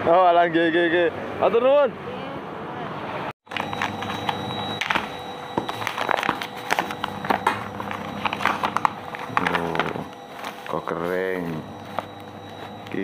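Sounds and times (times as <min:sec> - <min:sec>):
faint steady hum: 0:03.5 - 0:13.0
paper wrapping crinkling: 0:03.5 - 0:13.0.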